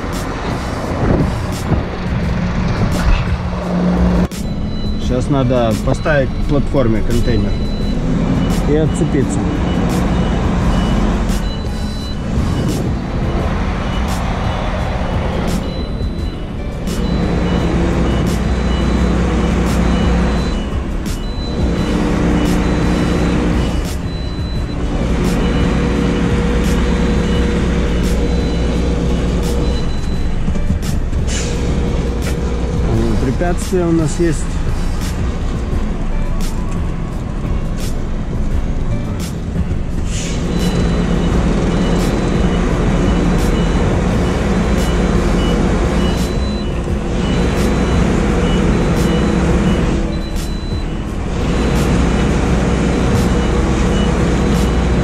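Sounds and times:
diesel engine running: 0.0s - 55.0s
reversing alarm beeping: 3.8s - 55.0s
faint high beeps: 4.3s - 13.4s, 15.5s - 19.1s.

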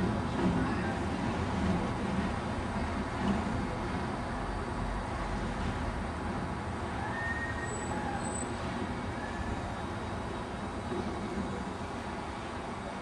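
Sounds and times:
train rumbling on track: 0.0s - 13.0s
faint short squeals: 7.0s - 9.7s.

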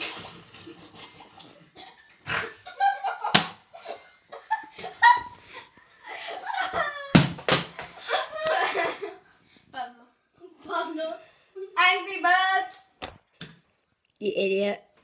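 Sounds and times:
sharp smacks: 3.3s - 3.6s.

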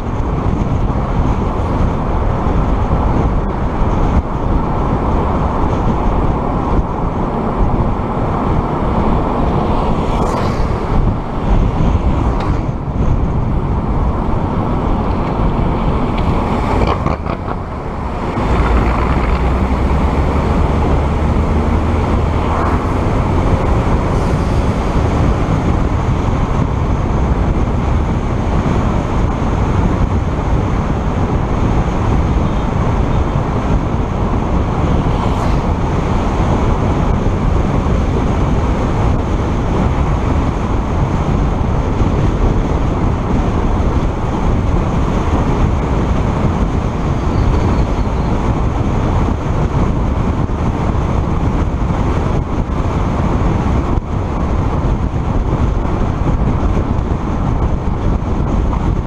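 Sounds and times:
vehicle driving on road: 0.0s - 59.0s.

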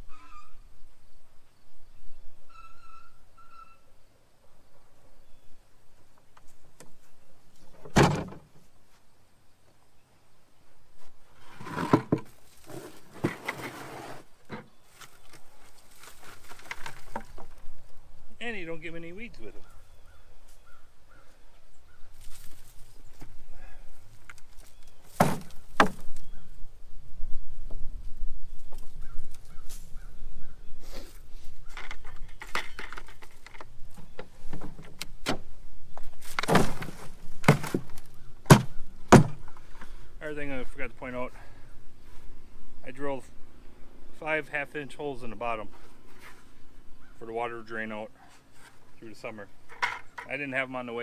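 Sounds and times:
rustling of plant stems and soil: 10.9s - 26.6s, 35.8s - 43.2s
potatoes handled into crate: 11.0s - 17.6s, 24.1s - 26.3s, 31.7s - 39.9s
plastic buckets knocking: 11.6s - 13.7s, 36.3s - 39.5s
bucket knocking on wooden bed: 25.2s - 26.1s, 36.4s - 39.4s.

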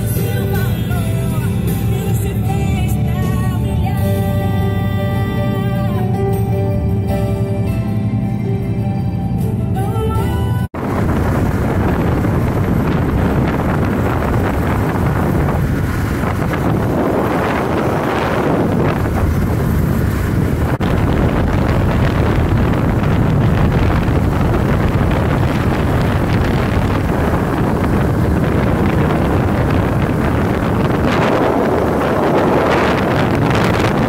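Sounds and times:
road and engine rumble: 0.0s - 34.0s
wind buffeting microphone: 10.7s - 34.0s.

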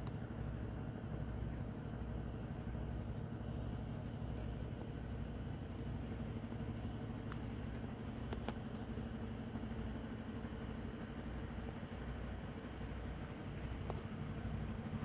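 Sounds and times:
engine idling: 0.0s - 15.0s
light clicks: 7.2s - 8.9s.

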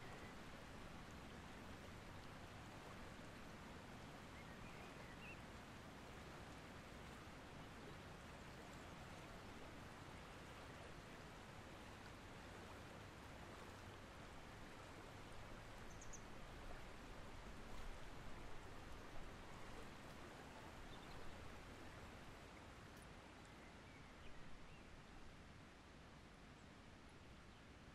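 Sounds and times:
river flowing: 0.0s - 27.9s
bird chirp: 15.9s - 16.2s.

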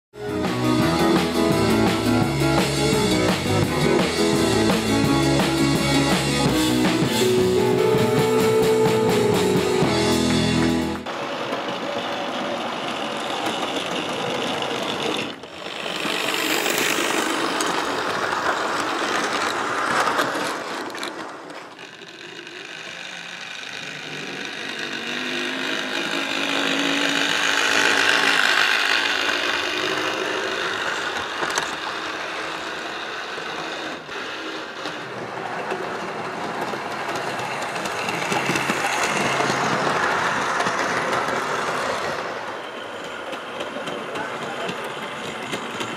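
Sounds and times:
wheels rattling over rail joints: 0.2s - 45.9s
small electric motor whirring: 21.7s - 34.9s.

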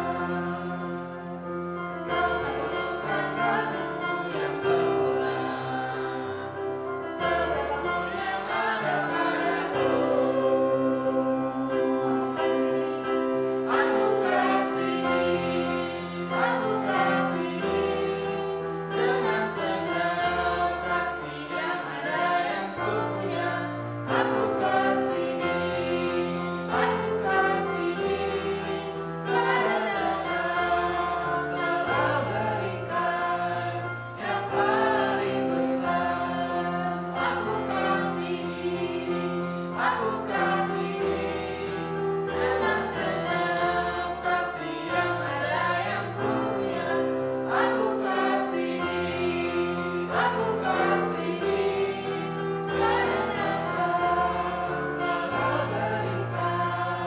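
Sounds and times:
people singing worship song: 0.0s - 57.0s.

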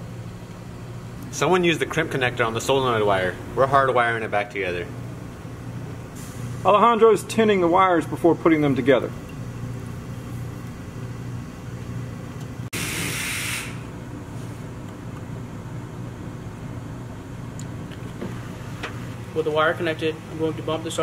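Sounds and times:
soldering gun humming: 12.4s - 14.0s
loud burst of hiss: 12.7s - 13.9s.

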